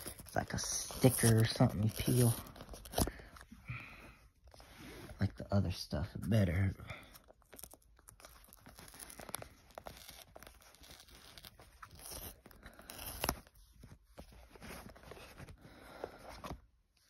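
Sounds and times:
paper tearing: 0.0 - 3.2, 7.5 - 13.6.

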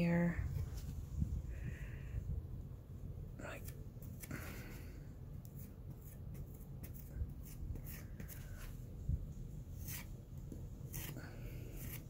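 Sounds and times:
putty knife scraping: 9.8 - 10.1, 10.9 - 12.0.

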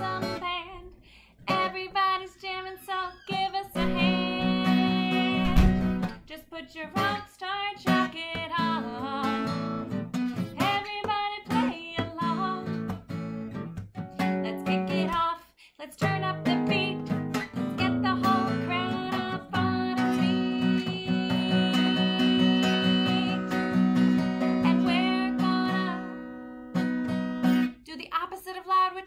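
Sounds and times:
woman singing: 0.0 - 13.1, 14.2 - 26.4, 27.7 - 29.0
acoustic guitar strumming: 3.8 - 6.3, 7.9 - 15.2, 16.3 - 27.7.

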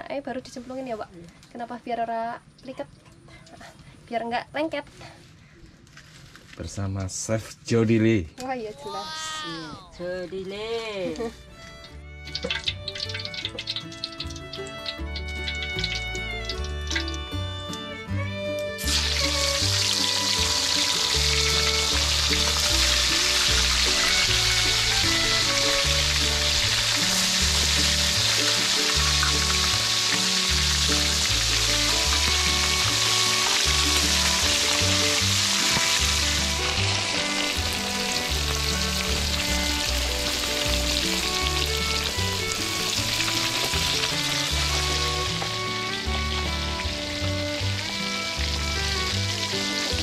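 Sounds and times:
background music: 8.9 - 50.0
fish sizzling in hot oil: 11.8 - 17.9, 18.8 - 50.0.

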